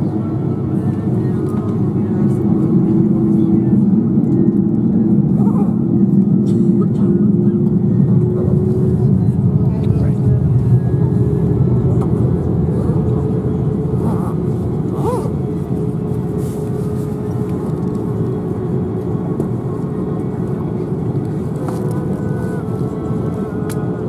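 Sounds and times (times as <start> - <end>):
aircraft cabin low rumble: 0.0 - 24.0
jet engine whine: 0.0 - 24.0.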